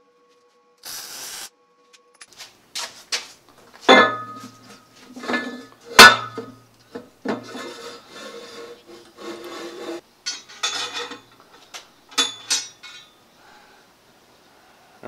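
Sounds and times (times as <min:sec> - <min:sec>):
metal scraping against column: 0:03.9 - 0:13.2.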